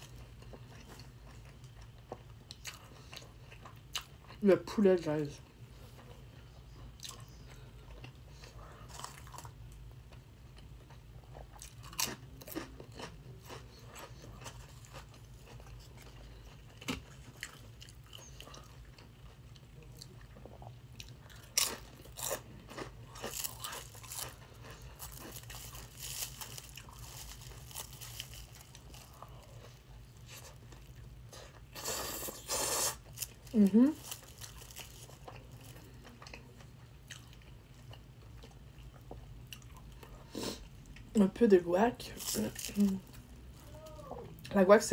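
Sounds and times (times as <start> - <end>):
person chewing food: 0.0 - 4.4, 5.5 - 41.1
faint low hum: 0.0 - 44.9.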